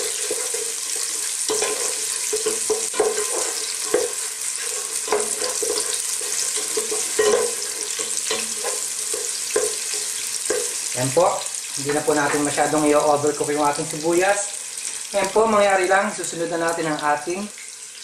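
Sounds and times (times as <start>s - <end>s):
spatula scraping and knocking pot: 0.0s - 10.9s
food sizzling in hot oil: 0.0s - 18.0s.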